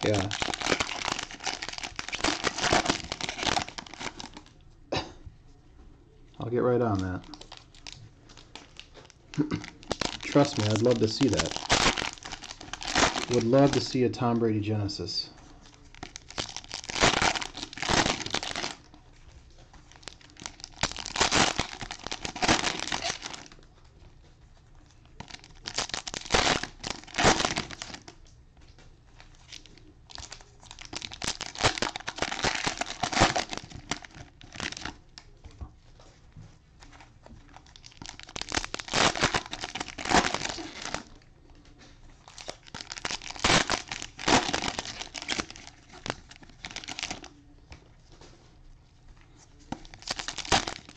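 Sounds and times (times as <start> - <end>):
cellophane wrappers crinkling: 0.0 - 4.5, 6.8 - 24.0, 24.8 - 50.9.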